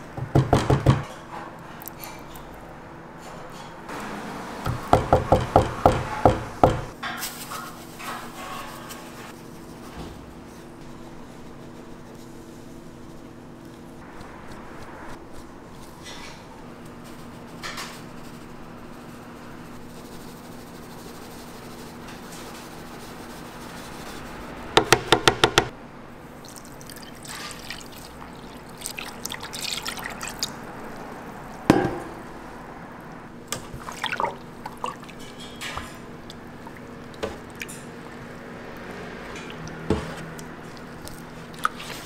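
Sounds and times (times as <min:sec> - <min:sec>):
wet squishing stirring: 0:26.2 - 0:32.3, 0:33.4 - 0:42.0
water pouring: 0:26.3 - 0:31.1, 0:33.7 - 0:35.4, 0:36.2 - 0:38.2.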